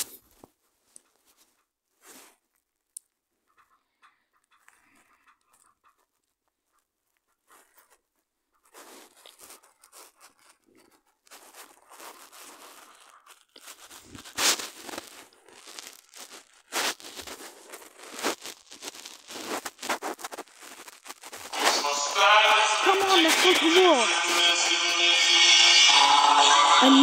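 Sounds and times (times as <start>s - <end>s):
rustling and crackling handling noise: 0.0s - 3.0s, 4.4s - 21.8s.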